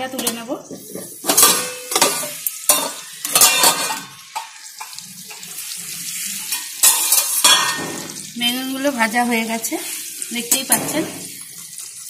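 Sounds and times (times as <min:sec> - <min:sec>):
vegetables sizzling in oil: 0:00.0 - 0:12.0
metal pot lid clattering: 0:00.1 - 0:05.0, 0:06.5 - 0:08.1.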